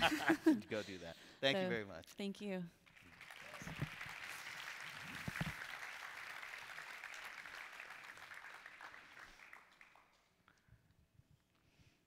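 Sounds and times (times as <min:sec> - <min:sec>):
audience applauding: 0:02.9 - 0:10.6.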